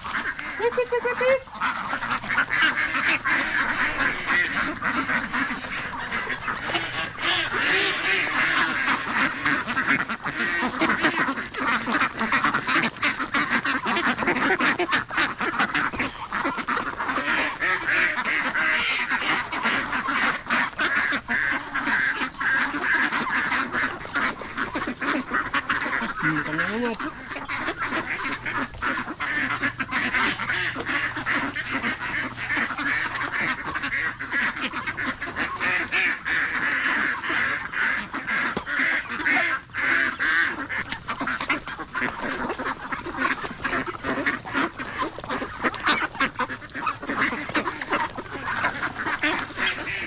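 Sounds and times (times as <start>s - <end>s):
ducks quacking: 0.0s - 50.0s.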